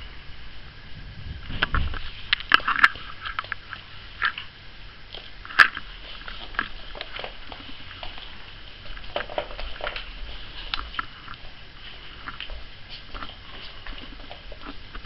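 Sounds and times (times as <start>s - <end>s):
paws scrabbling on wooden floor: 5.1s - 15.0s.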